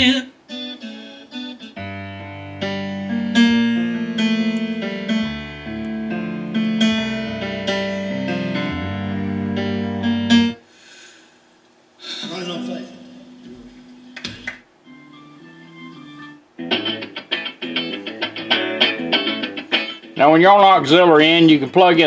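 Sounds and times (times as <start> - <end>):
piano music through speakers: 1.6 - 10.6, 12.3 - 20.5.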